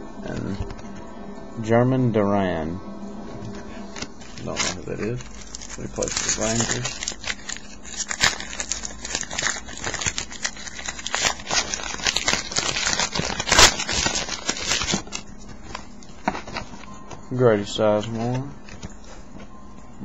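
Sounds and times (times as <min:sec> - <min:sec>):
card pack wrapper crinkling: 0:03.9 - 0:16.9.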